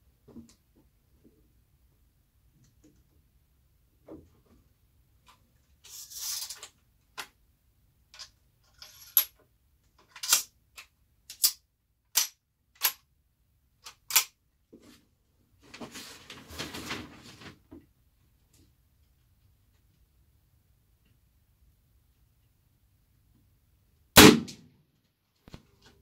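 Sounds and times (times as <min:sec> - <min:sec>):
rifle loading clicks: 0:10.1 - 0:13.0, 0:13.8 - 0:14.4.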